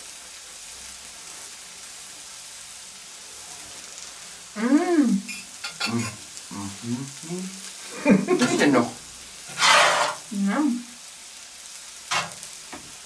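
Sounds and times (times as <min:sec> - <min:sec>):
food sizzling in a pan: 0:00.0 - 0:13.0
short vocal sound: 0:05.8 - 0:07.6.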